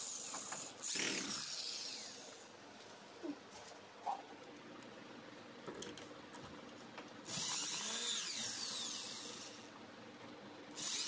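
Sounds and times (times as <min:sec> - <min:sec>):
cordless drill motor whine: 0:00.0 - 0:02.4, 0:07.2 - 0:09.7, 0:10.8 - 0:11.0.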